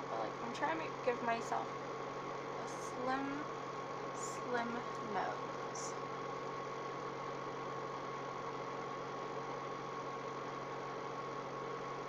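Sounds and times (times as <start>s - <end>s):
background hum and hiss: 0.0s - 12.0s.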